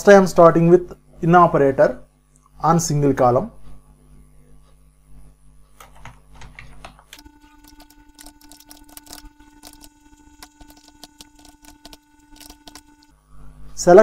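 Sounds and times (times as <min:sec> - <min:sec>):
computer keyboard typing: 0:05.8 - 0:13.1.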